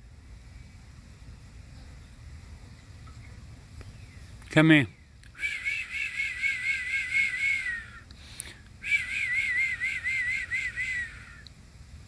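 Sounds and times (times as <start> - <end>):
warbling whistle-like phrases: 5.4 - 8.0, 8.8 - 11.4.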